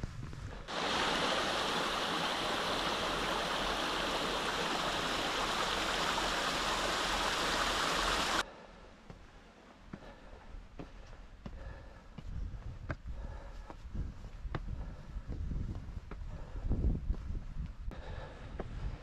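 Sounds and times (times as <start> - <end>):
stream splashing over stones: 0.7 - 8.4.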